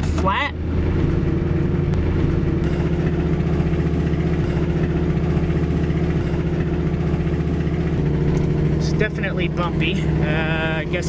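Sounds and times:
road noise on dirt road: 0:00.0 - 0:11.0
truck engine running: 0:00.0 - 0:11.0.

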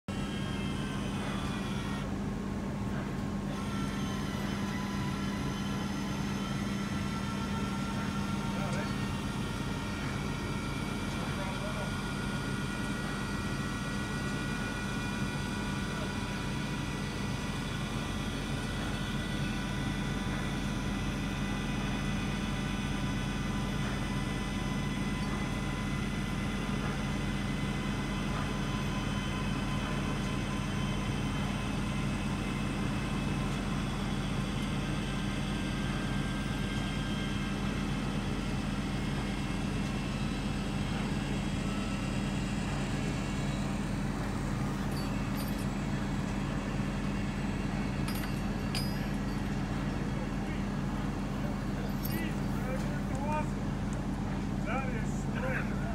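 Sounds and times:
machinery hum with steady tones: 0:00.1 - 0:55.9.

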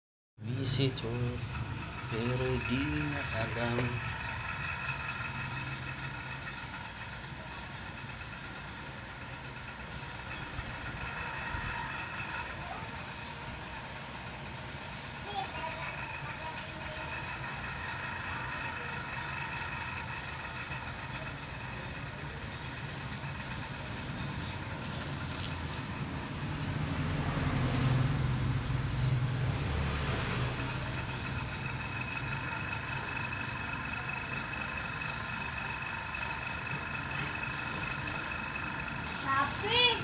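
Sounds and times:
road traffic noise: 0:00.4 - 0:40.0
faint high whine: 0:15.7 - 0:25.9, 0:30.8 - 0:40.0.

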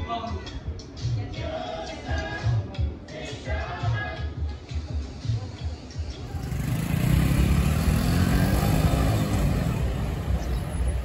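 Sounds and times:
low traffic rumble: 0:00.6 - 0:11.0
motorcycle engine passing: 0:06.3 - 0:11.0.

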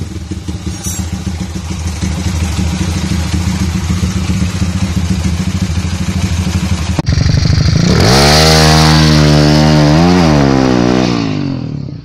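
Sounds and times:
engine idling: 0:00.0 - 0:08.2
motorcycle engine revving: 0:00.0 - 0:12.0.

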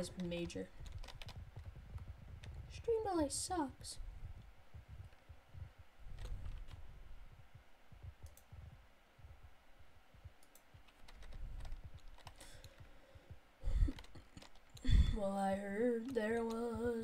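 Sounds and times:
keyboard and mouse clicking: 0:00.0 - 0:02.7, 0:06.1 - 0:06.8, 0:08.2 - 0:08.5, 0:10.4 - 0:12.9, 0:13.9 - 0:14.8
soft low thuds: 0:00.0 - 0:14.0.

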